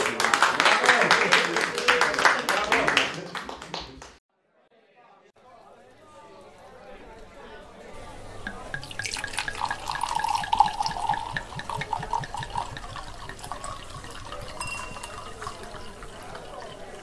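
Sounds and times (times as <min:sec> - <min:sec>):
liquid pouring into a glass: 0:07.2 - 0:17.0.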